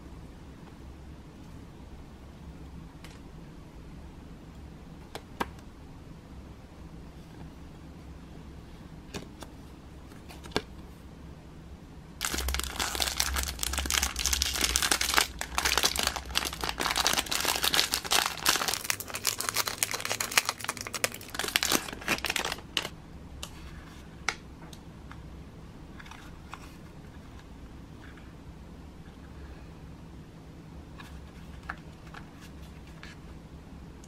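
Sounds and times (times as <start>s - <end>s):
cellophane bag crinkling: 12.2s - 22.9s.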